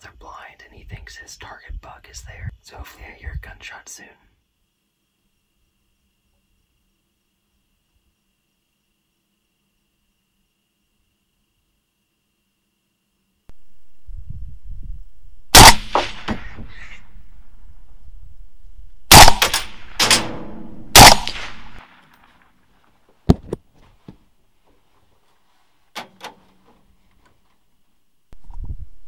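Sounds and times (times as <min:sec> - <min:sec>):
rifle shots: 0:15.5 - 0:17.6, 0:19.0 - 0:22.4.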